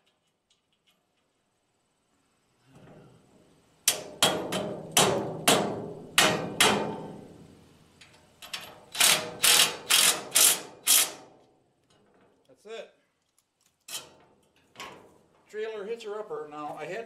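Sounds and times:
impact driver bursts ringing steel: 8.9 - 11.2.

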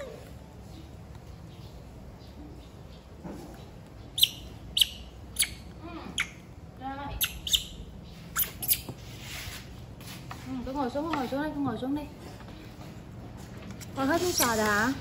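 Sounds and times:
sharp bird-like chirps: 4.0 - 6.5, 7.1 - 9.0.

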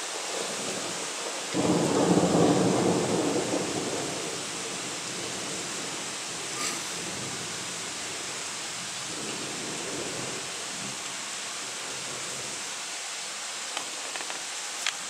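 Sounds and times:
steady rain hiss: 0.0 - 15.0
faint low thunder rumble: 0.5 - 11.1.

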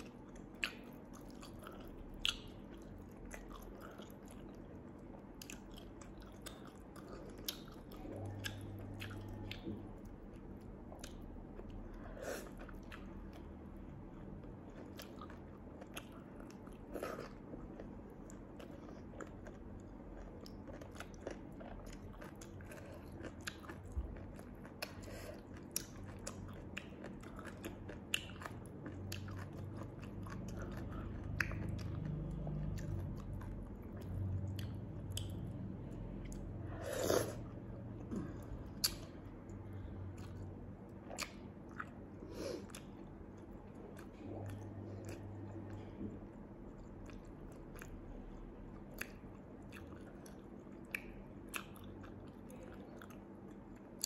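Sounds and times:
chewing and biting: 14.2 - 35.5, 46.7 - 54.0.

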